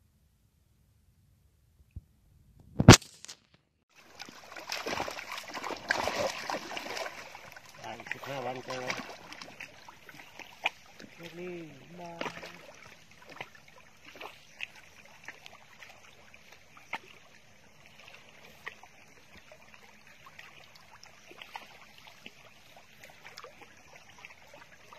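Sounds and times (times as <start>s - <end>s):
faint wash of water: 3.9s - 24.9s.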